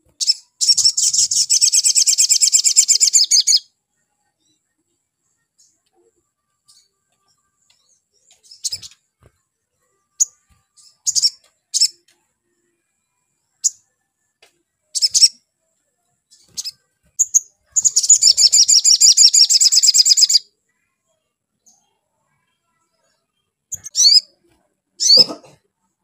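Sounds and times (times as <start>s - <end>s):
bird chirping and trilling: 0.1s - 3.7s, 7.9s - 9.0s, 10.1s - 12.0s, 14.9s - 15.4s, 16.3s - 20.5s, 23.7s - 24.4s, 25.0s - 25.4s.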